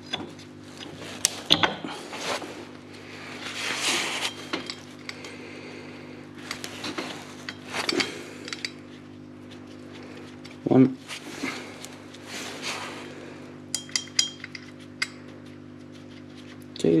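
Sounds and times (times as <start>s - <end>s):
steady low hum: 0.0s - 17.0s
belt scraping rub: 3.3s - 5.1s, 6.4s - 13.3s.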